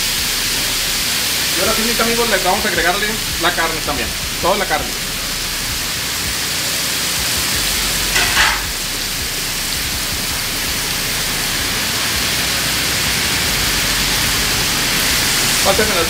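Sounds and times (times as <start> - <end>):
meat sizzling on griddle: 0.0 - 16.0
metal spatula scrape: 8.1 - 8.7.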